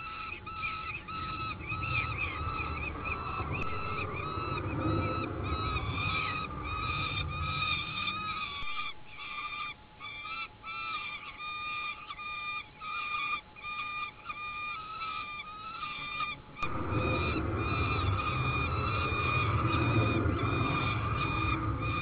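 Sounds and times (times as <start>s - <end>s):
low rumble: 0.0s - 9.7s, 16.4s - 22.0s
falcons wailing calls: 0.0s - 22.0s.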